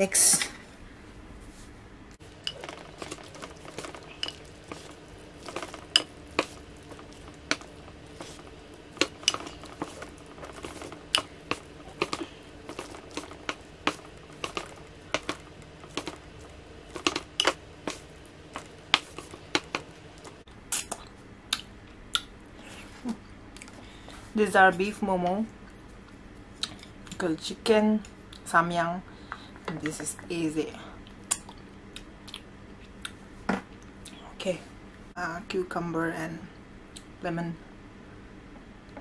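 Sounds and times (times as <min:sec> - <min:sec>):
chopsticks clicking against container: 0:02.3 - 0:20.4.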